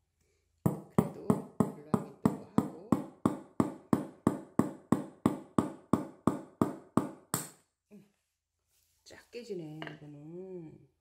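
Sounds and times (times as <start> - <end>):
hammer striking nail on glass: 0.7 - 7.6.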